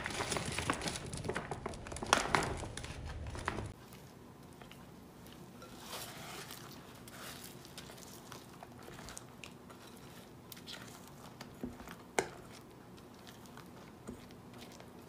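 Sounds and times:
spatula folding wet cream: 3.1 - 15.0.

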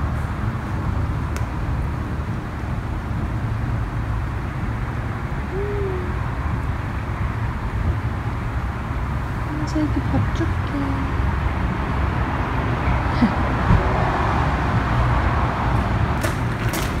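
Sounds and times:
steady low rumble: 0.0 - 17.0
short low-pitched call: 5.5 - 6.2.

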